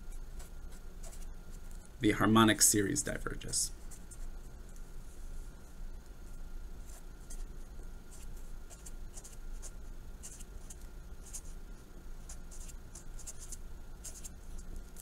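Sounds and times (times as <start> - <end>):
pen scratching on paper: 8.1 - 11.6, 12.2 - 14.4.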